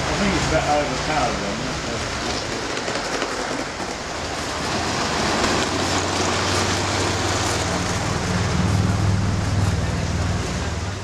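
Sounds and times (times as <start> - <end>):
model train wheels rattling: 1.9 - 7.9.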